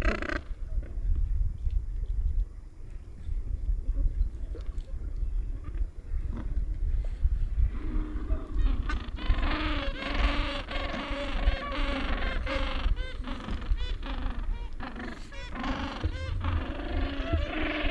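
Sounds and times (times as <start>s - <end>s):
low rumble: 0.4s - 9.7s
penguins braying: 8.3s - 17.9s.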